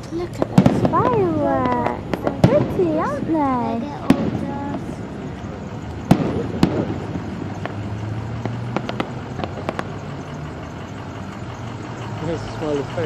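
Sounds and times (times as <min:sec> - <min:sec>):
firework crackling pops: 0:00.0 - 0:10.3
firework bangs: 0:00.0 - 0:10.7.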